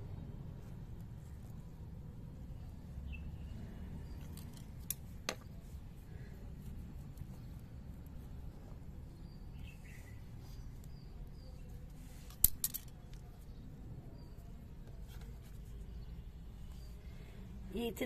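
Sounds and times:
faint bird chirps: 9.1 - 12.2.

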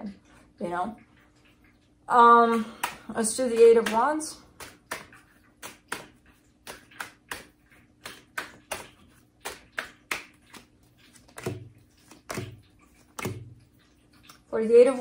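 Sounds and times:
cards being shuffled: 4.6 - 13.4.

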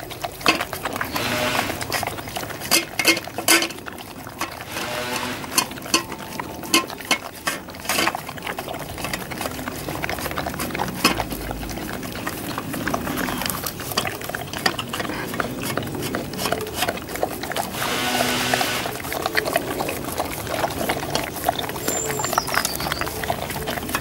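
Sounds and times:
dogs licking and chewing food: 0.0 - 24.0
metal bowls clinking: 0.4 - 8.2.

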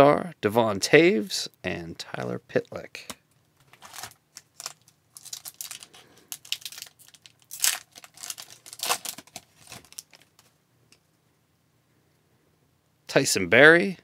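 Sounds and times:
foil wrapper crinkling and tearing: 3.7 - 10.5.

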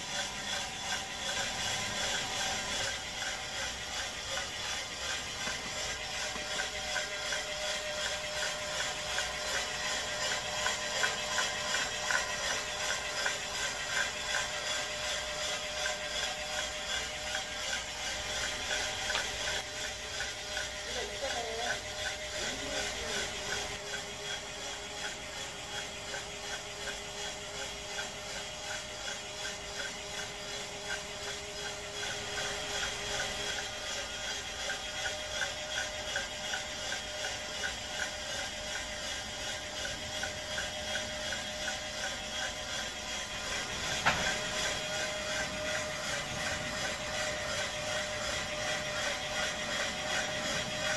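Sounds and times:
constant machine hum: 0.0 - 50.9
roaster drum clicking: 0.0 - 50.9.

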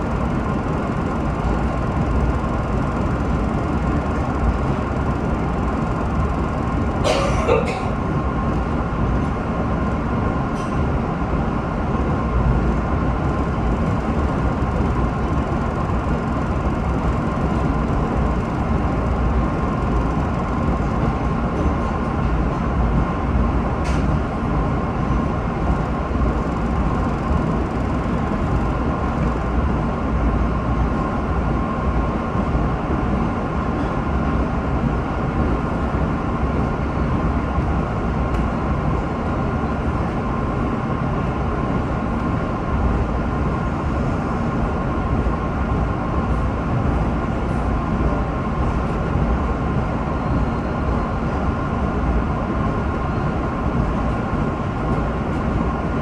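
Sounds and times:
rumble of wheels on rail: 0.0 - 56.0
train whine: 0.0 - 56.0.

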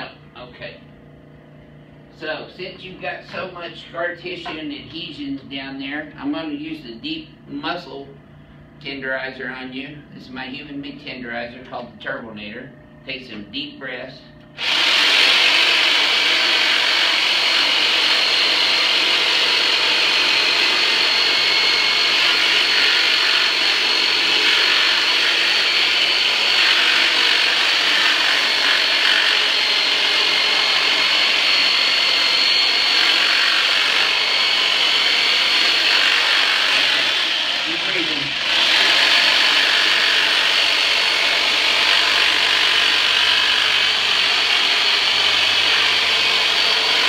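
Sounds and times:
high whine: 0.0 - 46.6
power tool motor buzzing: 14.5 - 47.0.

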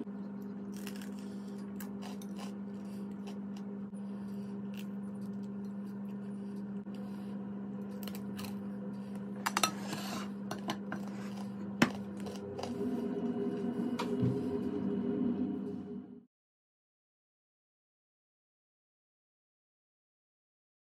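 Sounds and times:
steady low hum: 0.0 - 16.3.

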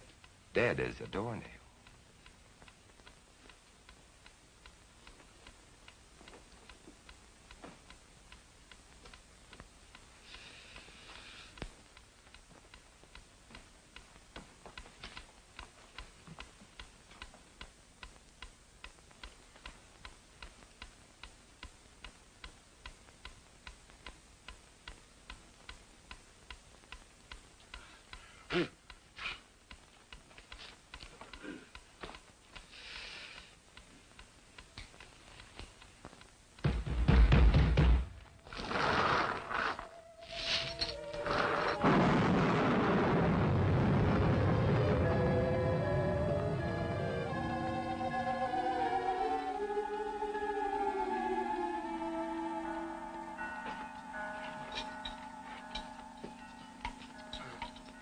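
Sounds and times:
clock ticking: 0.0 - 37.2, 52.6 - 58.0.

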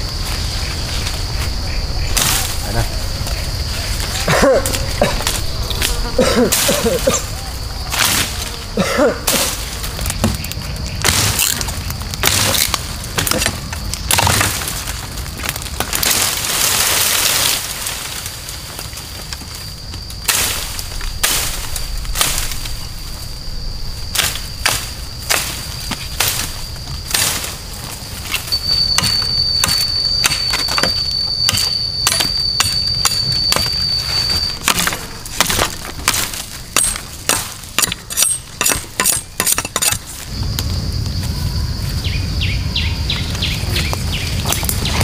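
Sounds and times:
high-pitched insect drone: 0.0 - 15.1, 16.1 - 45.0
wood being chopped: 34.6 - 40.0.

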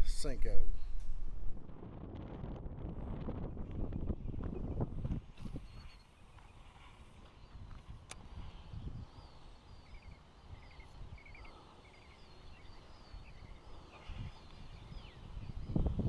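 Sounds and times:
wild birds chirping and whistling: 4.0 - 16.0.

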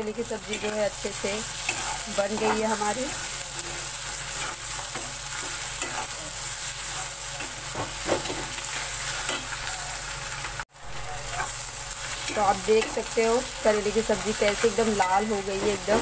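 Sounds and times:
vegetables sizzling in a pan: 0.0 - 16.0
metal spatula scraping a pan: 0.4 - 6.6.

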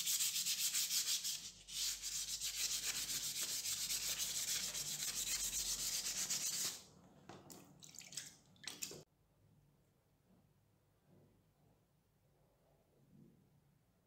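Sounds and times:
hand sanding metal: 0.0 - 6.8.

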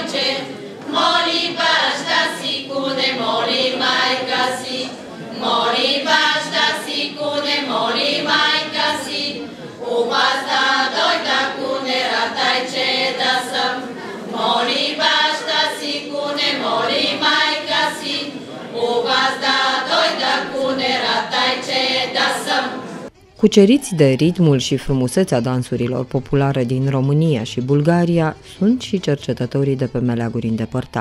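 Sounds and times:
women's choir singing a cappella: 0.0 - 23.1.

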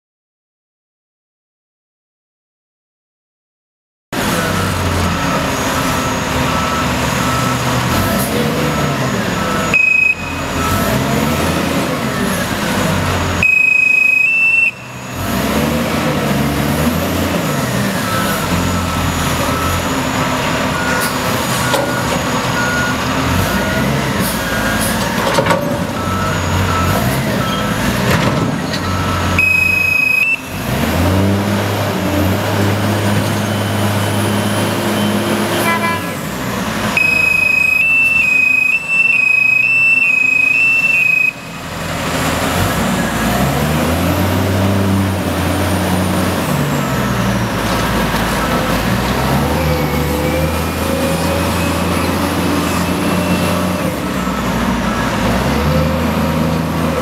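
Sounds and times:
diesel engine running: 4.2 - 57.0
back-up beeper: 8.7 - 11.0, 13.4 - 14.9, 28.7 - 30.6, 37.0 - 41.6
loud high steady tone: 9.4 - 10.6.

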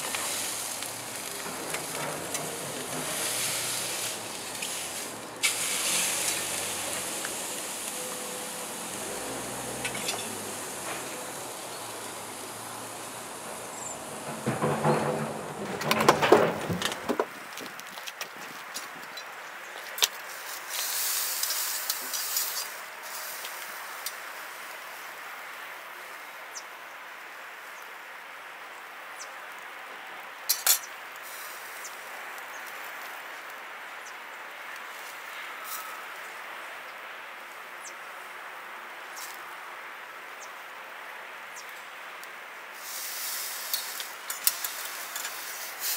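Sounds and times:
meat sizzling on a grill: 0.0 - 13.9, 20.3 - 25.5, 31.2 - 32.0, 42.8 - 45.9
metal tongs clinking on grate: 0.1 - 6.5, 9.8 - 10.4.

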